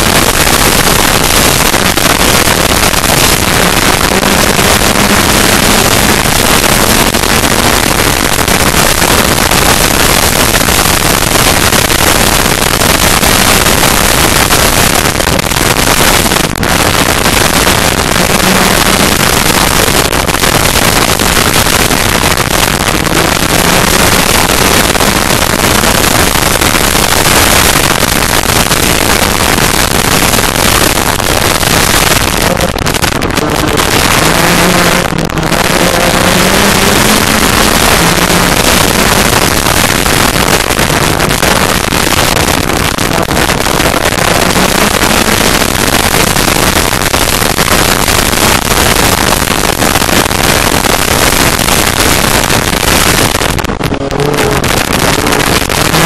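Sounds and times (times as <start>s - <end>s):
wind and gravel rushing: 0.0s - 56.0s
off-road vehicle engine revving: 32.4s - 39.0s.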